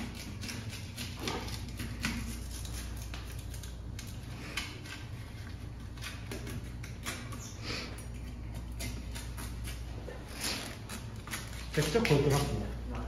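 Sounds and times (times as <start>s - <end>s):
low steady hum: 0.0s - 13.0s
knife clicking and scraping: 5.9s - 12.0s.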